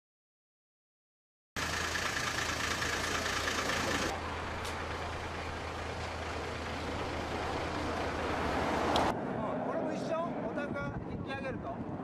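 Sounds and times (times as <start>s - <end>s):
vehicle engine hum: 1.6s - 10.5s.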